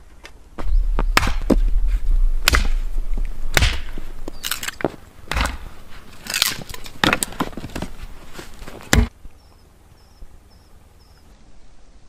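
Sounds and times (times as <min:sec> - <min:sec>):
sharp cracks and crunches: 0:01.0 - 0:09.1.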